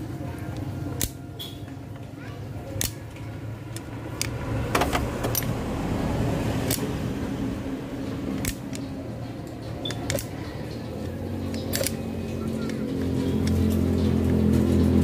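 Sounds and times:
screwdriver clicking on metal: 8.3 - 14.0.

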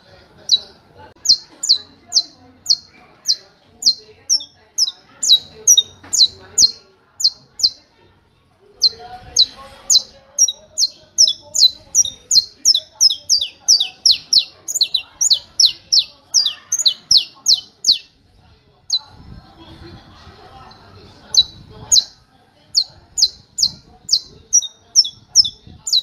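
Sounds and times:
finch singing sharp chips: 0.5 - 7.8, 8.8 - 18.1.

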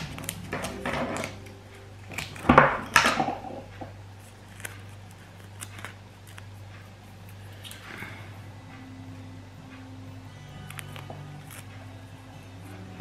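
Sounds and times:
scissors snipping tape: 0.0 - 1.4, 4.2 - 6.6
tape rustling and tapping: 0.0 - 7.9
low steady hum: 0.0 - 13.0.

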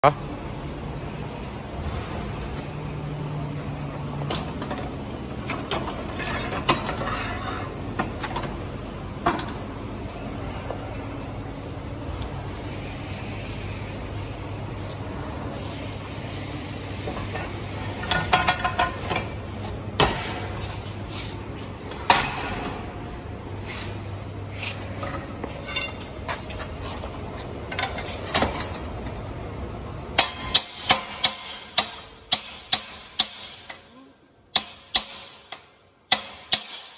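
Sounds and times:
hammer striking metal: 34.5 - 36.9.

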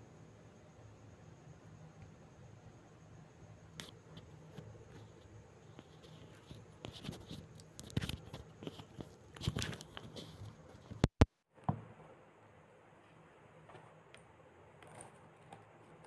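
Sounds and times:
rustling handling noises: 3.8 - 11.1.

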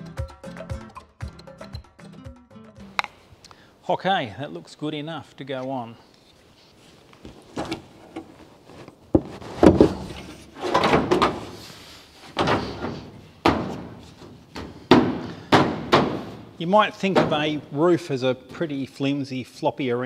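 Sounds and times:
metal thunks and clanks: 9.1 - 11.6, 12.2 - 17.6.

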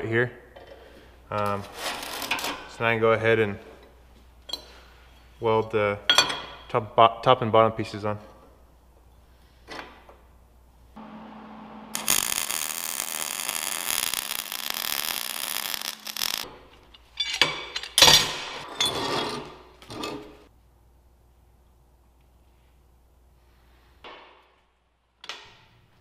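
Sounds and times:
arc welding: 11.9 - 16.5.

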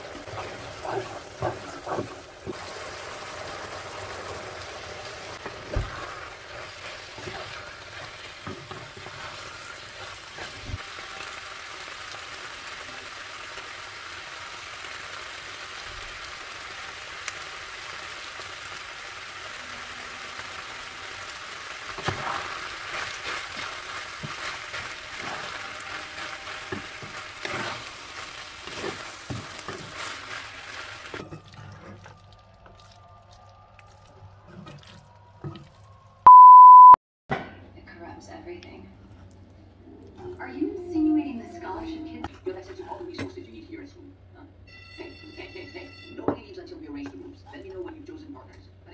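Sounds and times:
sauce sizzling in a frying pan: 0.0 - 31.3
utensils scraping a pan: 22.0 - 32.1.

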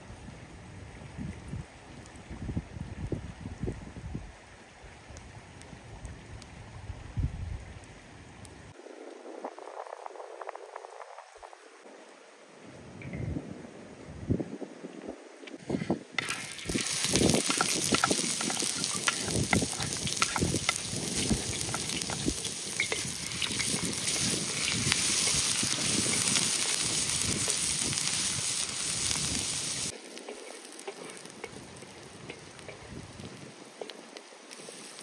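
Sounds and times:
food frying with crackles: 15.5 - 35.0.

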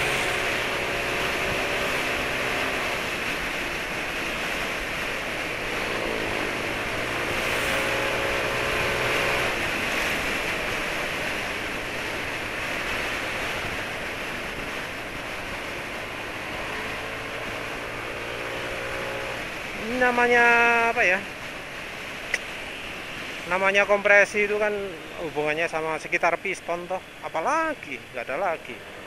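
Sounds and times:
motorbike engine running: 0.0 - 20.2
wind rushing over microphone: 0.0 - 29.0.

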